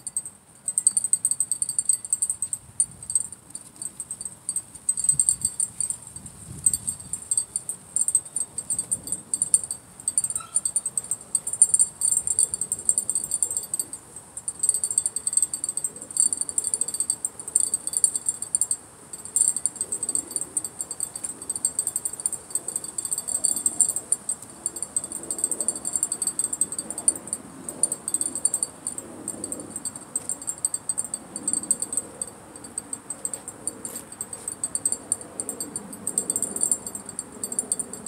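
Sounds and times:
faint wind rumble: 0:00.0 - 0:38.0
insects buzzing trill: 0:00.0 - 0:38.0.

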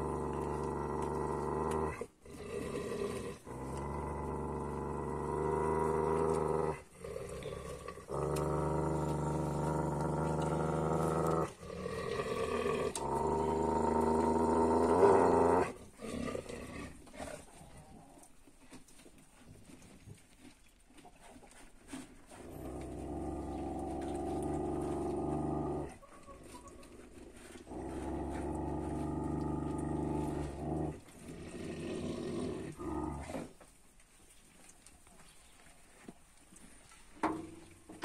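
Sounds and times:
dog growling: 0:00.0 - 0:18.2, 0:21.9 - 0:33.5.

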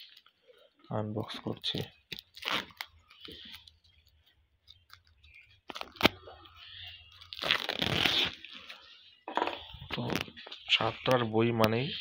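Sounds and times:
plastic shrink-wrap crinkling: 0:00.0 - 0:08.9
plastic wrap tearing: 0:01.6 - 0:08.7
plastic wrap snapping: 0:04.6 - 0:06.3, 0:07.1 - 0:08.5.

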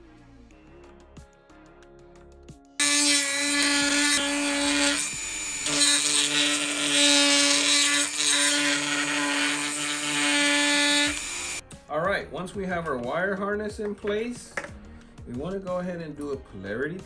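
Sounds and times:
rotary tool grinding plastic: 0:02.8 - 0:11.6.

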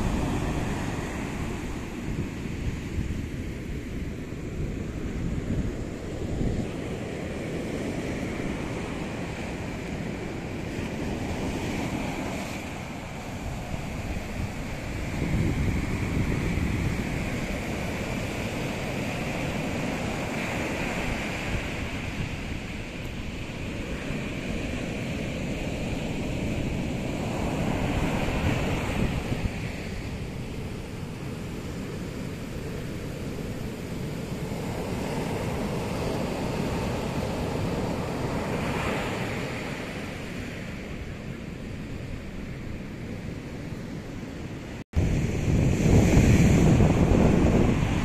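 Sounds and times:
surf breaking on shore: 0:00.0 - 0:43.2, 0:44.6 - 0:48.0.

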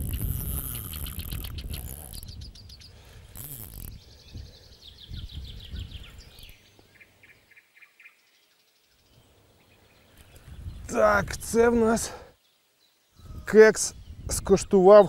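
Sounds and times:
low rumble on microphone: 0:00.0 - 0:06.5
small birds singing: 0:00.0 - 0:15.0.

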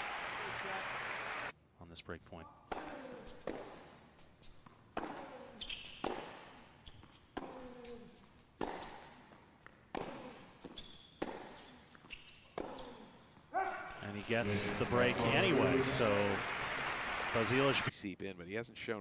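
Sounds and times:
tennis racket hitting ball: 0:02.7 - 0:03.9, 0:04.9 - 0:06.6, 0:07.3 - 0:13.1.

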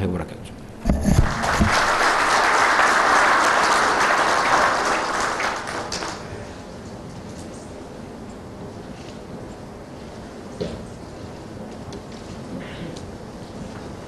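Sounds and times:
audience applauding: 0:01.0 - 0:06.5.

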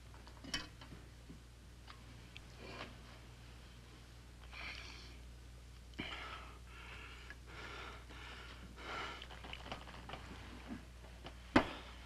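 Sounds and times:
low steady hum: 0:00.0 - 0:12.0
man breathing heavily: 0:06.0 - 0:09.4.

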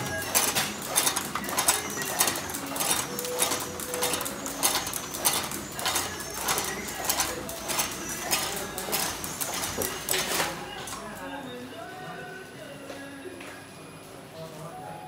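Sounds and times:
packaging machine clattering: 0:00.0 - 0:11.0.

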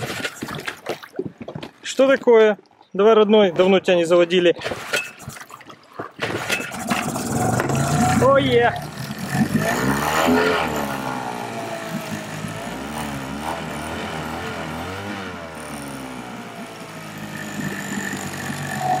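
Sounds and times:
outboard motor idling: 0:06.4 - 0:19.0.

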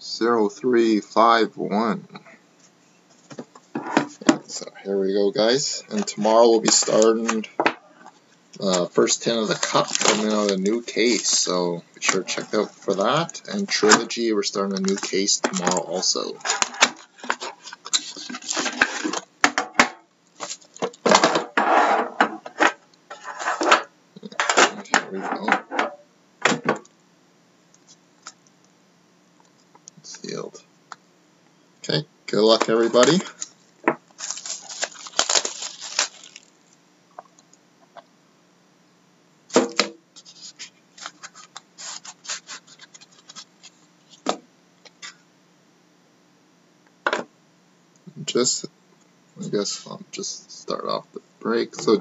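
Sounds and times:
plastic wrapper rustling: 0:08.6 - 0:19.3, 0:20.3 - 0:21.2, 0:32.5 - 0:37.3, 0:40.3 - 0:44.3
cardboard scratches and rustles: 0:40.2 - 0:43.8.

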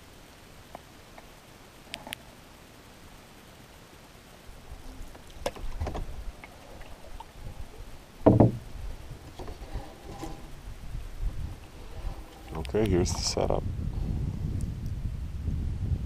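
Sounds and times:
paddle knocking against canoe: 0:04.8 - 0:12.7
wooden paddle strokes: 0:08.2 - 0:08.6, 0:09.2 - 0:10.6.

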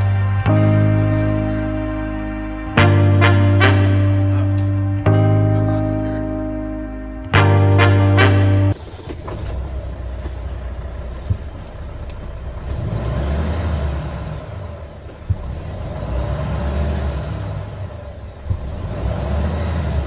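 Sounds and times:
diesel truck engine rumbling: 0:00.0 - 0:20.0.

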